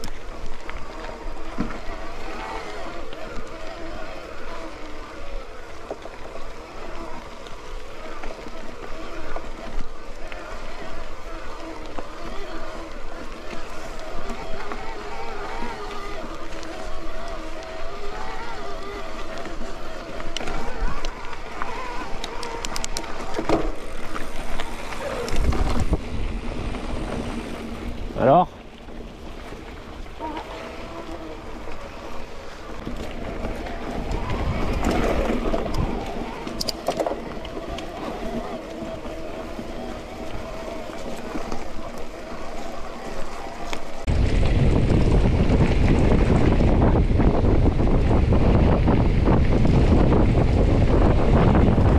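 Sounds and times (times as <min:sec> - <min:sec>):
bike rattling: 0:00.0 - 0:51.9
bike tyre riding noise: 0:00.0 - 0:51.9
wind buffeting microphone: 0:10.8 - 0:51.9.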